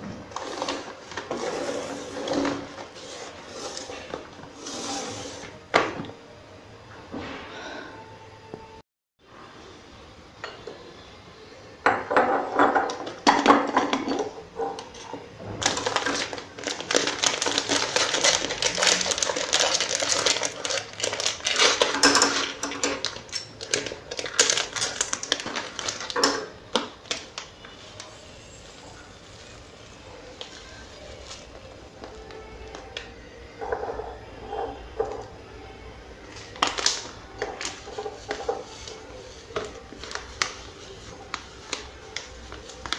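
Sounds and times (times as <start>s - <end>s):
plastic bag crinkling: 15.6s - 28.2s, 36.4s - 42.9s.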